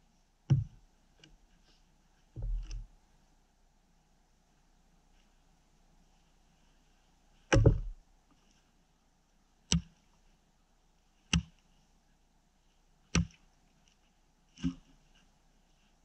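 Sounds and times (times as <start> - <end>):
axe chopping into a log: 7.5 - 8.0, 13.2 - 13.4.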